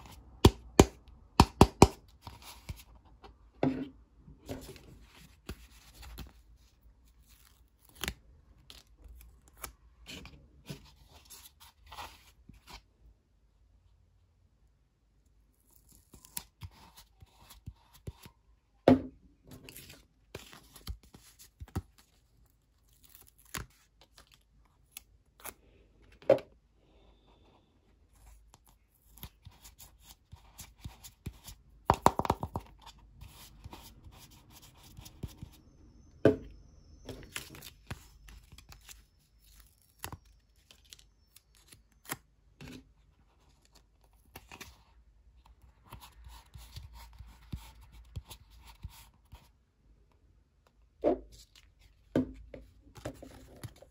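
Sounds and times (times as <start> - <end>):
plastic toy egg knocks and taps: 31.9 - 32.7.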